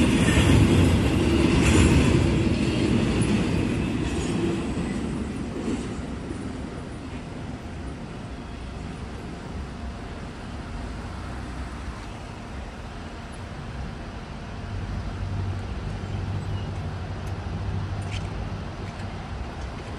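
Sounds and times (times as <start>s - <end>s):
low rumble over railroad crossing: 0.0s - 19.9s.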